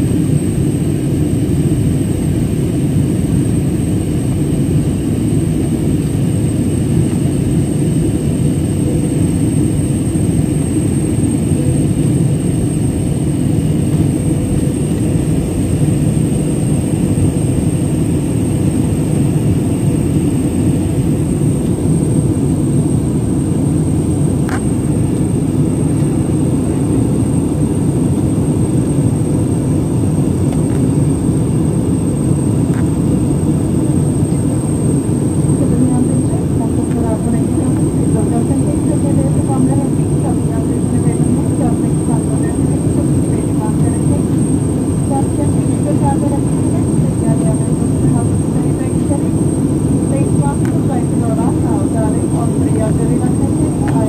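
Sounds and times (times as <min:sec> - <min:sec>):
jet engine and airflow rumble: 0:00.0 - 0:54.0.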